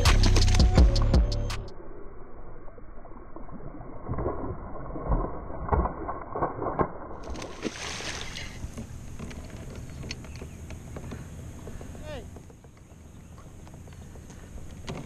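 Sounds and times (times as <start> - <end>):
fish splashing in water: 3.4 - 9.1.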